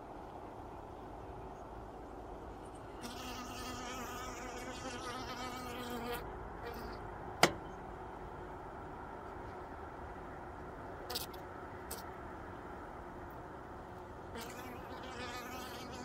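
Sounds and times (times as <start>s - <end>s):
honeybee buzzing: 3.0s - 7.0s, 14.4s - 16.0s.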